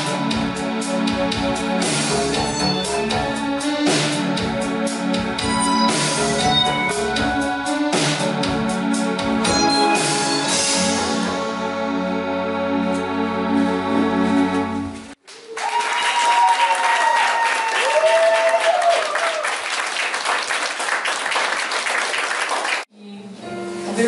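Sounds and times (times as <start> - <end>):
held keyboard chord: 0.0 - 15.0
audience applauding: 15.2 - 22.9
audience cheering: 15.3 - 22.8.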